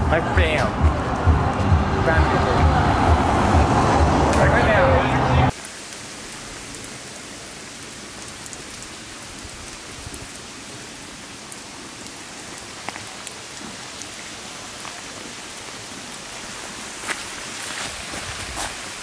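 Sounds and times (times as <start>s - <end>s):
hiss of falling water: 5.5s - 19.0s.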